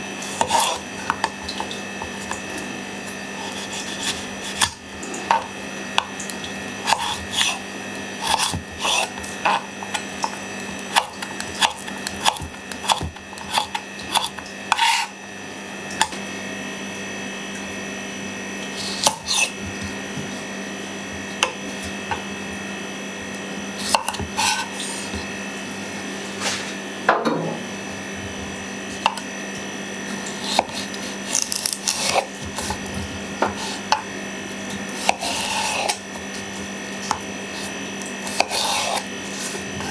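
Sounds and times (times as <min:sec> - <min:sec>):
knife cutting on wooden board: 0:00.2 - 0:02.4, 0:03.4 - 0:06.1, 0:06.8 - 0:07.6, 0:08.2 - 0:15.2, 0:18.8 - 0:19.9, 0:23.8 - 0:25.3, 0:30.4 - 0:34.0, 0:35.0 - 0:36.0, 0:37.1 - 0:39.9.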